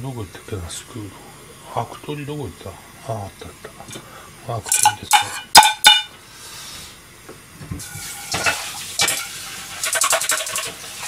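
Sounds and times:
steady hiss: 0.0 - 11.0
skimmer scraping metal pot: 7.8 - 11.0.

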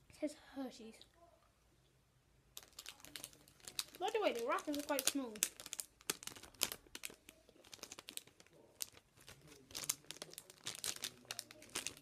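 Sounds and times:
wrapper crinkling: 2.6 - 12.0.

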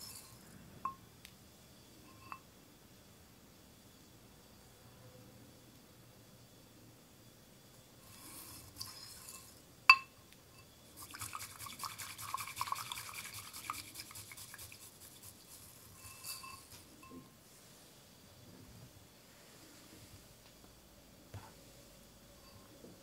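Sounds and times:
clink on ceramic bowl: 2.1 - 2.5, 8.8 - 10.7, 16.0 - 17.4
tea whisk swishing in water: 11.0 - 16.8.

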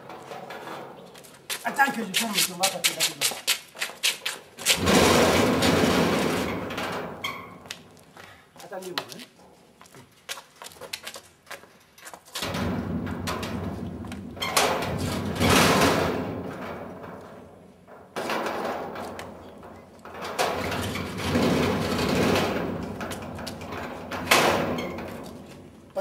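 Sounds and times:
metal gate scraping and rattling: 0.0 - 2.1, 4.6 - 7.9, 12.4 - 26.0.

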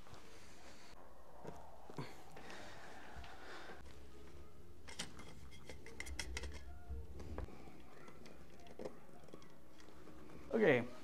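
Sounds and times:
screwdriver clicks and scrapes: 4.9 - 6.7.

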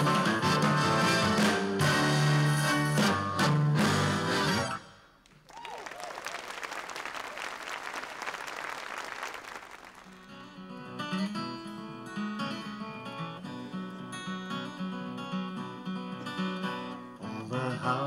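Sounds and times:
acoustic guitar playing: 0.0 - 4.8, 10.1 - 18.0
audience applauding: 5.2 - 10.3.

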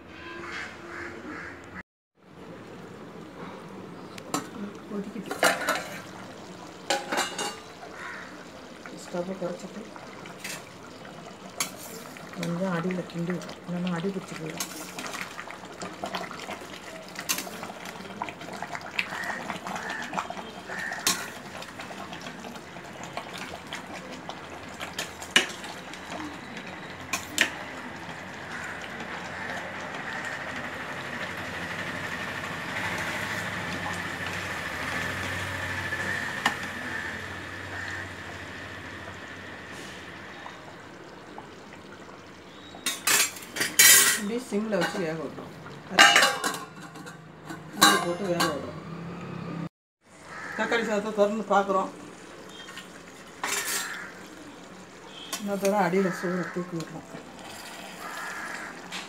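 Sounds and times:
rice boiling in a pot: 2.2 - 48.6, 50.0 - 59.0
ladle clinking against pot: 6.9 - 7.6, 46.0 - 48.6.

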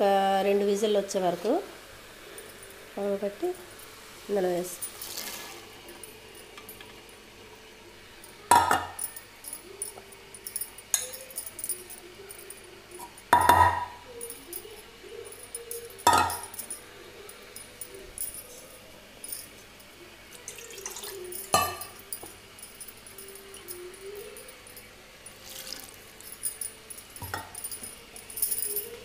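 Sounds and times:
steel spoon clanking on pot: 8.4 - 12.1, 13.0 - 14.0, 15.5 - 16.8, 20.8 - 24.4, 26.4 - 29.0.

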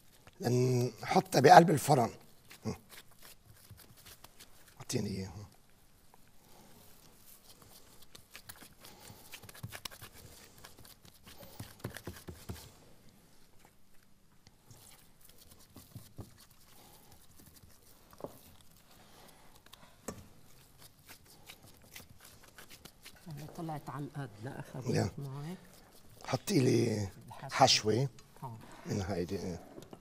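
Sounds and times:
hands squishing and patting dough: 0.0 - 23.9.

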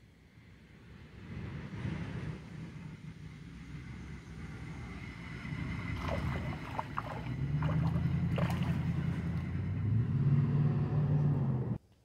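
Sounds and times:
low engine hum: 0.2 - 11.8
water splashing: 5.8 - 9.7.

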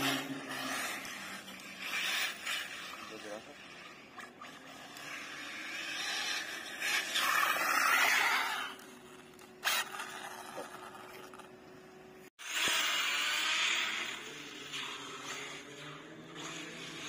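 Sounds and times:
rc truck tyres rushing on paving: 0.0 - 17.0.

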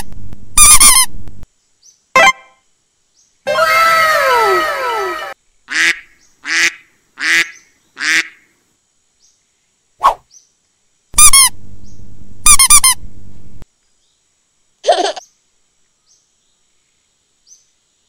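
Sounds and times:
steady low hum: 0.0 - 1.7, 11.0 - 13.7
squeaky rubber duck quacks: 0.6 - 1.1, 11.2 - 11.5, 12.5 - 13.0.

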